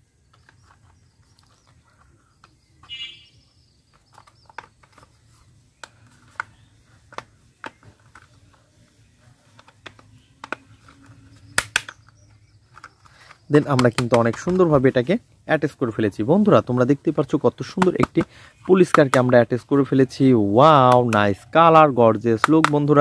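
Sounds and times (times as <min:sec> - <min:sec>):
plastic toy parts clicking: 0:00.3 - 0:03.0, 0:03.9 - 0:05.2, 0:05.8 - 0:08.6, 0:09.4 - 0:15.1, 0:17.2 - 0:19.8, 0:20.6 - 0:21.4, 0:22.2 - 0:23.0.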